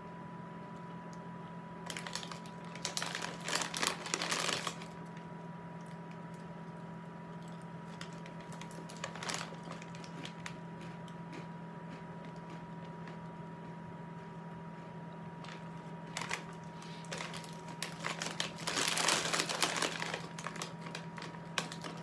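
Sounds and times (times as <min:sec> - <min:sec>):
low hum with high tone: 0:00.0 - 0:22.0
plastic bag crinkling: 0:01.8 - 0:05.3, 0:07.8 - 0:10.7, 0:15.4 - 0:22.0.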